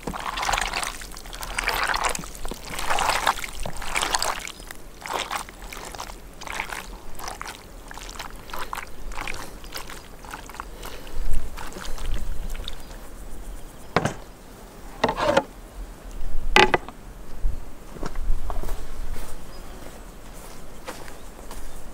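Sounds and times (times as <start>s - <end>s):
wet squelching of meat: 0.0s - 13.1s
wooden lid knocking on tub: 14.0s - 14.2s, 16.6s - 16.9s.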